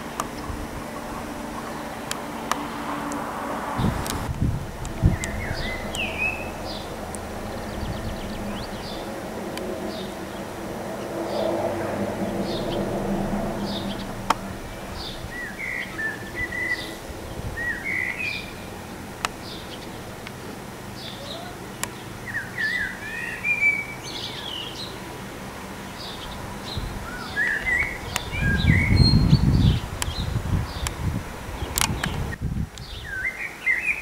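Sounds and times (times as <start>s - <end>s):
songbirds chirping and singing: 0.0s - 25.2s, 25.9s - 31.0s, 31.6s - 34.0s
low steady hum: 0.0s - 31.7s
sharp clicks: 31.7s - 32.2s.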